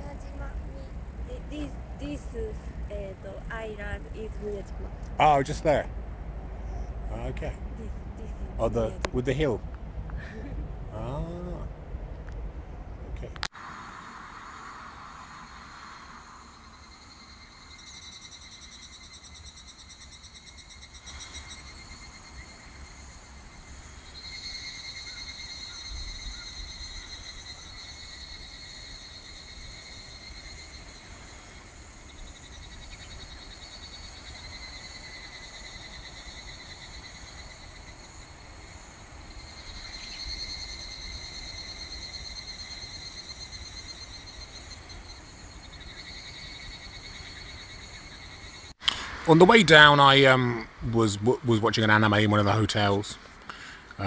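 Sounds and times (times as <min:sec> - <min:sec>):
low rumble: 0:00.0 - 0:13.4.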